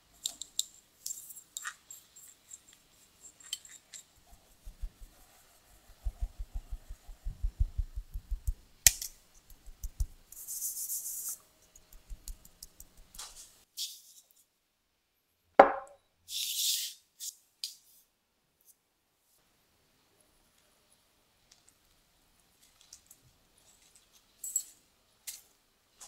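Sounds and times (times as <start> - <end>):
hand patting metal sieve: 5.9 - 10.5
sharp ringing knock: 15.6 - 16.0.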